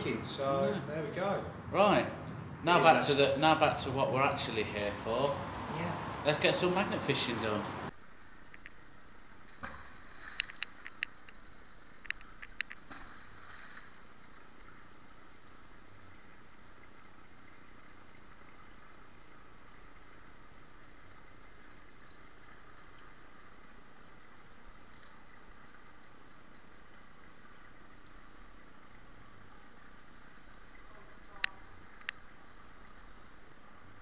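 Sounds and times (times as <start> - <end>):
road traffic hum: 0.0 - 14.4.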